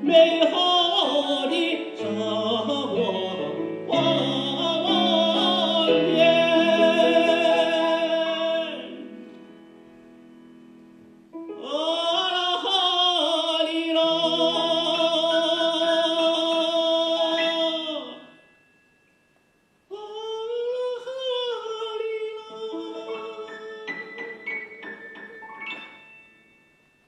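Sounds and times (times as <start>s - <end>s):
man singing operatic style: 0.0s - 9.3s, 11.5s - 18.3s, 19.9s - 24.7s
musical accompaniment: 0.0s - 12.2s, 13.3s - 18.2s, 22.0s - 27.0s.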